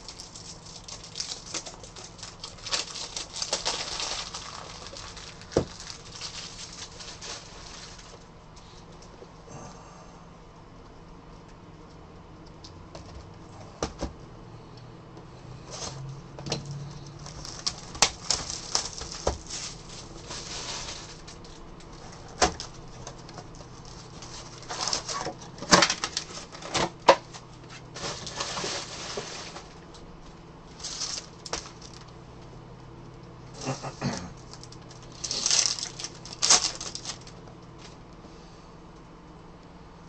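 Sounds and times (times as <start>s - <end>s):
foil wrapper crinkling: 0.0s - 8.3s, 17.0s - 32.2s, 34.4s - 38.0s.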